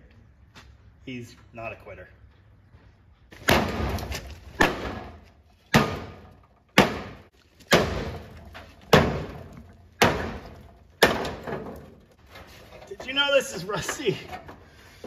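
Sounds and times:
hammer pounding metal: 3.4s - 11.9s.

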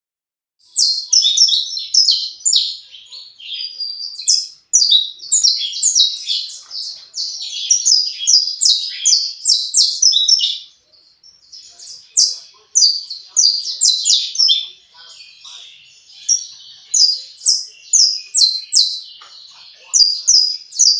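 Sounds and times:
finch singing high chirps: 0.6s - 20.9s.

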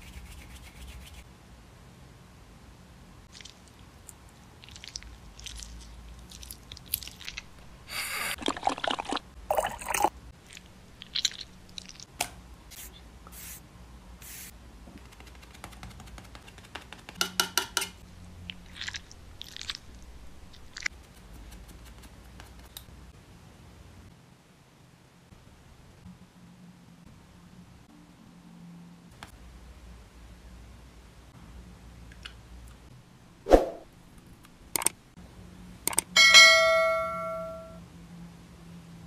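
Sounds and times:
makeup tools clicking and tapping: 15.0s - 18.0s.

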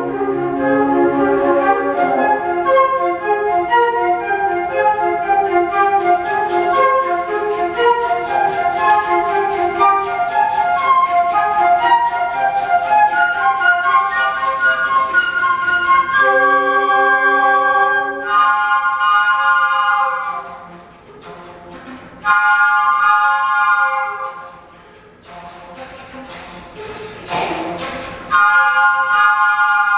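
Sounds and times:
flute choir playing: 0.0s - 29.9s.

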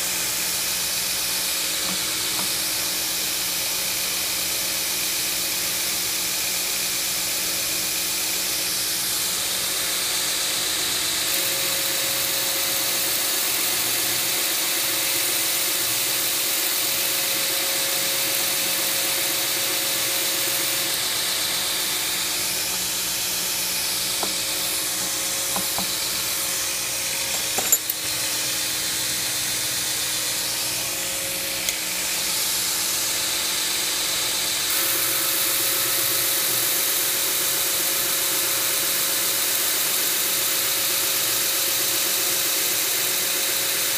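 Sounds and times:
belt grinder grinding hiss: 1.0s - 3.5s, 11.0s - 33.9s
motor hum: 1.4s - 3.2s, 17.5s - 29.2s.

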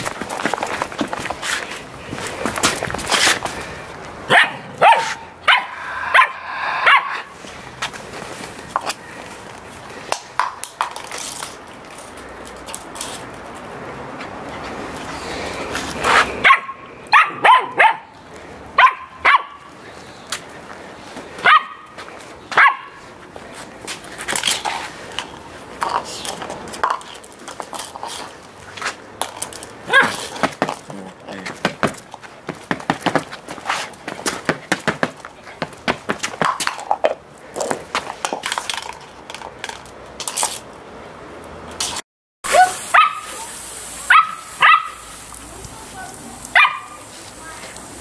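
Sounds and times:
puppy barking: 4.3s - 7.3s, 16.4s - 18.1s, 18.8s - 19.7s, 21.4s - 21.8s, 22.6s - 23.0s, 29.9s - 30.2s, 42.5s - 43.4s, 44.1s - 45.0s, 46.5s - 47.0s.

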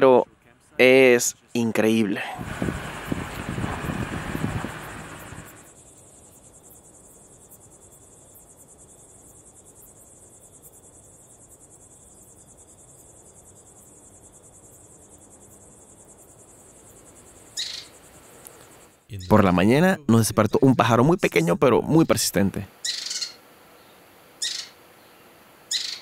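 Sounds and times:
crickets chirping: 2.4s - 26.0s.

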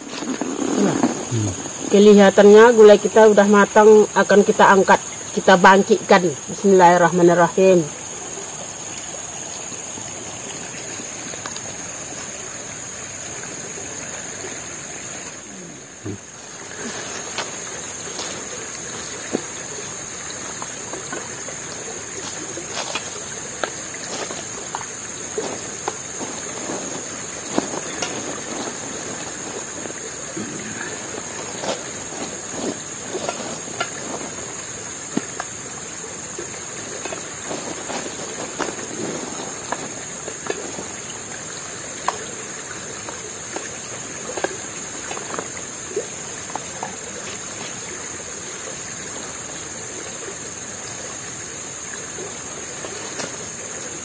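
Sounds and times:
river water flowing: 0.0s - 54.0s.

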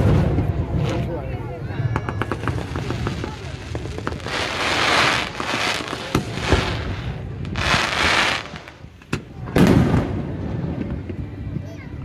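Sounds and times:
fireworks crackling: 0.0s - 11.5s
fireworks sharp bangs: 1.8s - 11.1s.

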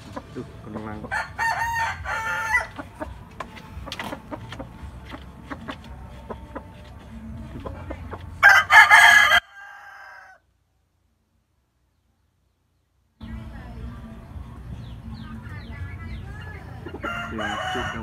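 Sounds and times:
rooster crowing: 1.1s - 2.9s, 8.4s - 10.4s, 17.0s - 18.0s.

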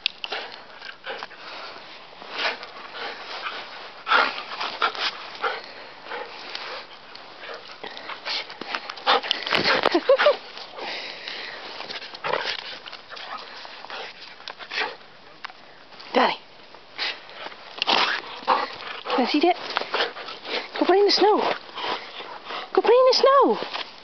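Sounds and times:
dog sniffing in snow: 1.1s - 12.8s.

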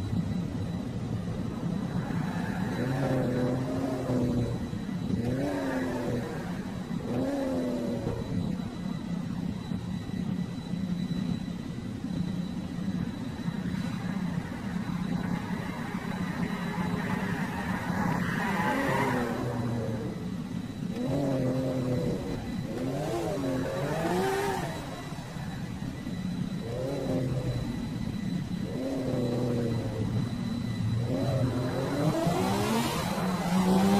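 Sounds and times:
toy car engine revving: 31.0s - 33.9s.

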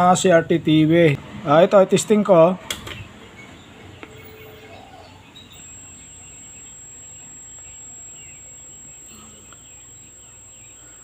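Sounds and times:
faint bird chirps: 3.4s - 11.0s
high-pitched tv whistle: 4.8s - 11.0s.

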